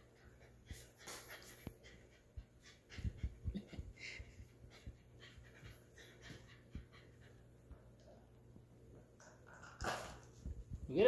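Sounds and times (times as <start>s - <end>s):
dog panting and snuffling: 0.0s - 8.0s.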